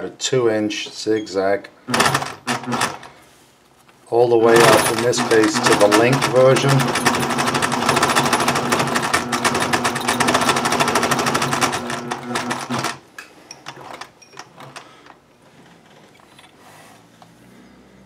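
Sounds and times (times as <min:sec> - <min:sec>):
sewing machine stitching: 0:01.9 - 0:03.1, 0:04.5 - 0:13.0, 0:13.6 - 0:15.2.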